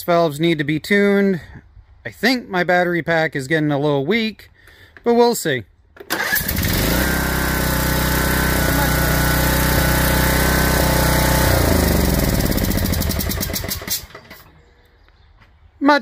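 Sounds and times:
mower engine starting and running: 6.0 - 14.6.

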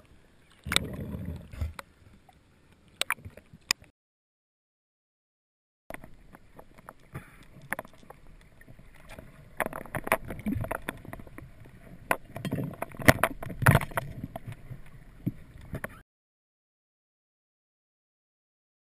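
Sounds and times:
underwater wash: 0.0 - 3.9, 5.9 - 16.0.

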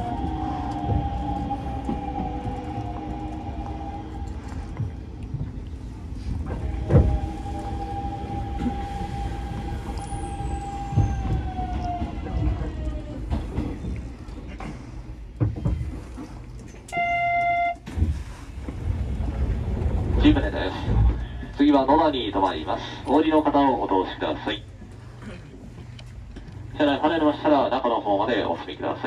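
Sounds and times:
electric train motor whine: 0.0 - 5.5, 6.5 - 13.6.

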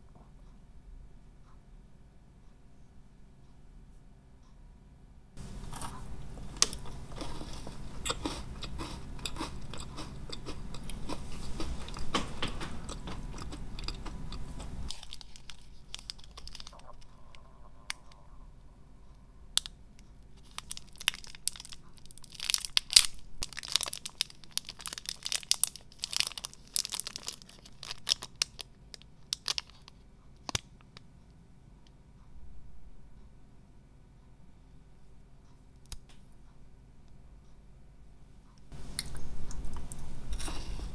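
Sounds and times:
chewing crunchy snack: 5.6 - 12.2, 12.8 - 18.3, 20.4 - 30.7
plastic wrapper crackling: 14.9 - 18.1, 20.4 - 31.0.

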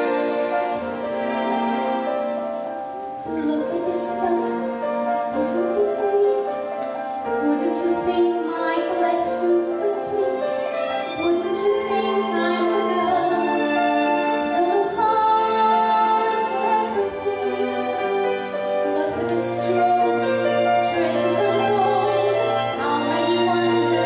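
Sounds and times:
grand piano: 0.0 - 24.0
string orchestra: 0.0 - 24.0
woman singing into microphone: 7.4 - 10.6, 14.6 - 17.8, 18.8 - 24.0.

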